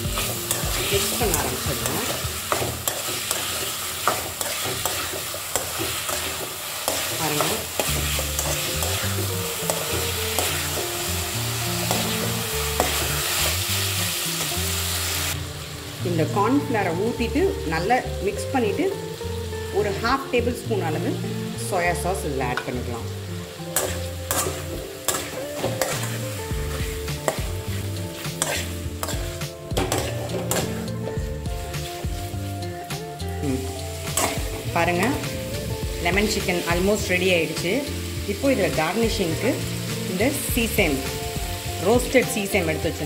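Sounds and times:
metal ladle scraping a wok: 0:00.0 - 0:15.4, 0:23.8 - 0:32.3, 0:33.7 - 0:35.0
chicken sizzling in sauce: 0:00.0 - 0:43.0
low background tune: 0:00.0 - 0:43.0.

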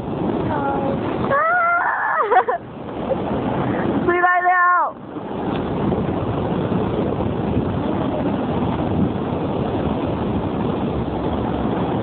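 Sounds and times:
surf washing onto beach: 0:00.0 - 0:12.0
wind buffeting microphone: 0:00.0 - 0:12.0.

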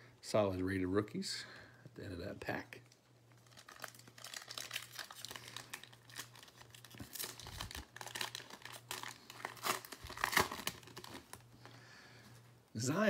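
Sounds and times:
plastic foil wrapper tearing and crinkling: 0:03.3 - 0:11.4.

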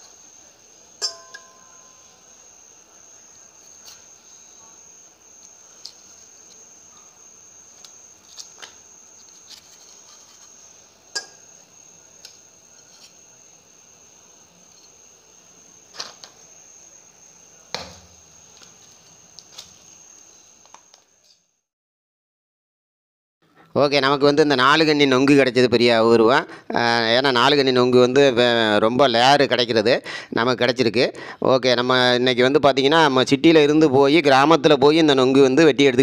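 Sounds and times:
cricket trilling: 0:00.0 - 0:21.5.

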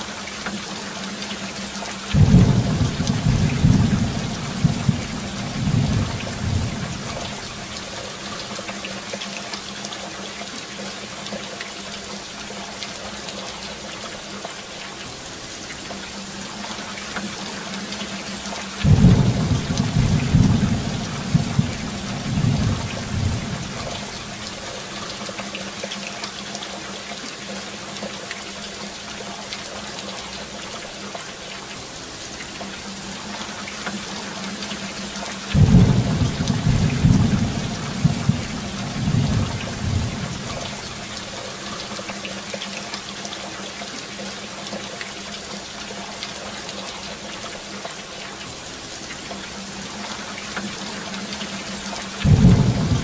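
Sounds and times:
steady rain: 0:00.0 - 0:53.0
thunder rumbling: 0:02.2 - 0:07.7, 0:18.8 - 0:24.5, 0:35.5 - 0:41.1, 0:52.2 - 0:53.0.

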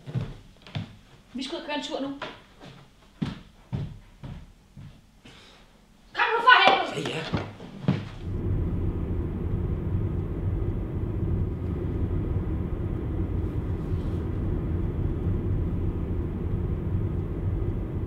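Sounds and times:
car engine and road rumble: 0:08.2 - 0:18.0.

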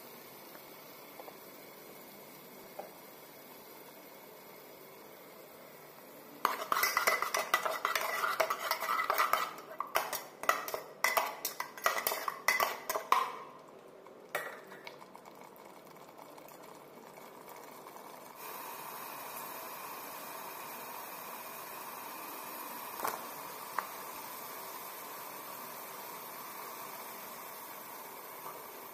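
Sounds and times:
faint steady hiss: 0:00.0 - 0:28.9
spatula scraping metal pot: 0:06.4 - 0:13.4.

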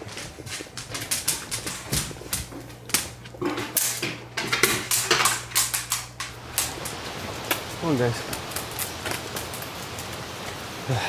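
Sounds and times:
dog nails clicking on floor: 0:00.0 - 0:06.9.

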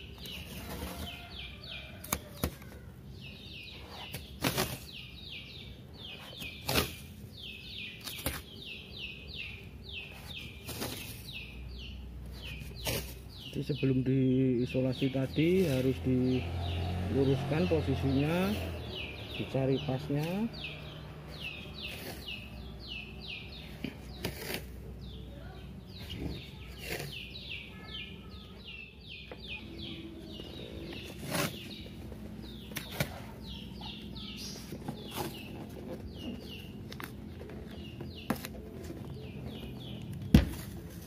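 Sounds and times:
bird chirping: 0:00.0 - 0:41.0.

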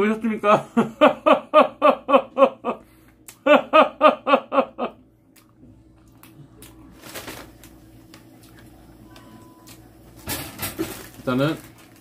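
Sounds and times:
man laughing: 0:00.4 - 0:05.0
paper bag rustling: 0:06.9 - 0:07.8, 0:10.5 - 0:12.0.

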